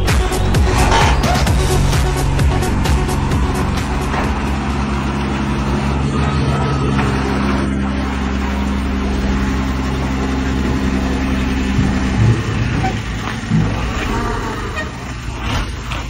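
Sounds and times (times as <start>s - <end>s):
diesel truck engine droning: 0.0s - 16.0s
rough low rumble: 0.0s - 16.0s
short knocks: 0.6s - 1.8s.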